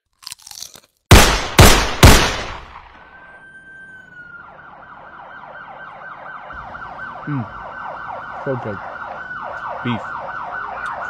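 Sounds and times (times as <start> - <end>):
siren yelping: 2.7 - 11.0.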